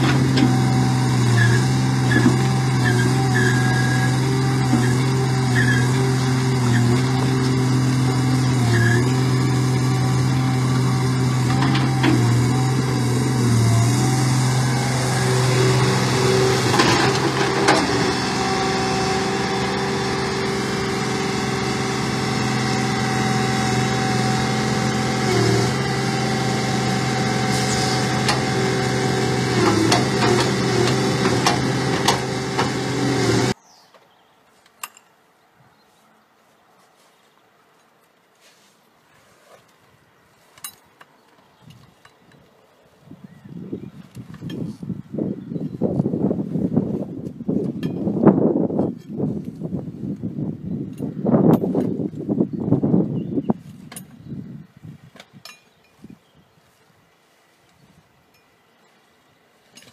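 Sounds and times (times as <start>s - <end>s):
engine running steadily: 0.0s - 33.6s
knocks and clanks: 9.7s - 14.2s, 15.2s - 21.4s, 27.1s - 33.5s.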